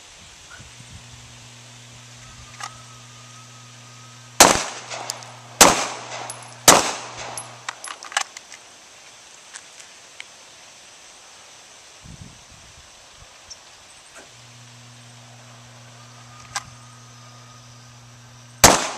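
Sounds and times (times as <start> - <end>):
low steady hum: 0.0 - 8.2, 13.8 - 18.9
pistol shots: 4.4 - 7.7, 18.6 - 18.9
fainter sharp cracks: 4.4 - 8.5.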